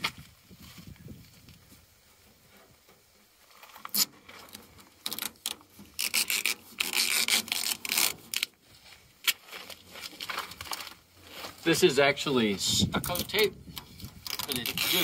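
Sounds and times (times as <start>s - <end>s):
tape pulled off roll: 3.5s - 8.6s
tape snapping: 3.9s - 8.5s.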